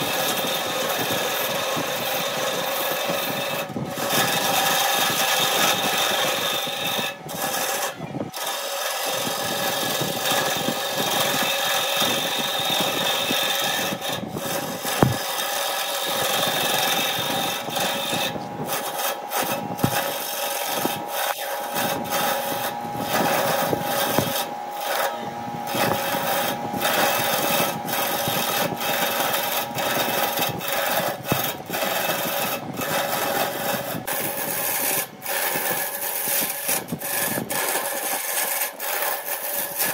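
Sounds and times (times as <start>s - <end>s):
lathe motor hum: 0.0s - 39.9s
turning tool scraping wood: 0.0s - 39.9s.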